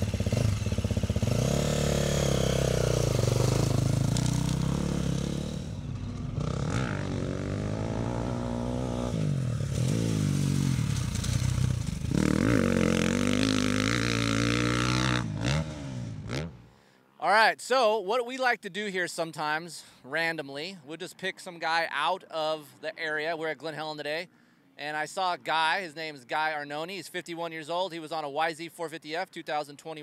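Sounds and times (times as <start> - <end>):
motocross engine revving: 0.0 - 16.6.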